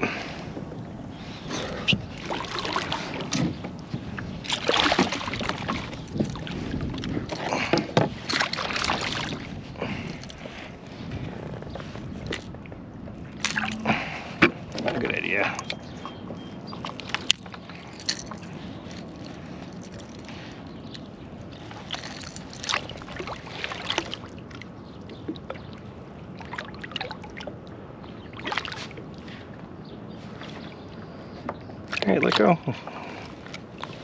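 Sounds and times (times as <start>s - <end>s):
water sloshing and gurgling: 0.0s - 34.0s
short splashes: 4.4s - 6.6s, 7.3s - 10.1s.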